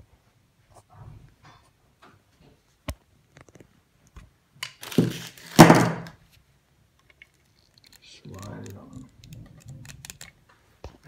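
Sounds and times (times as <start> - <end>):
light handling ticks: 7.0 - 10.4.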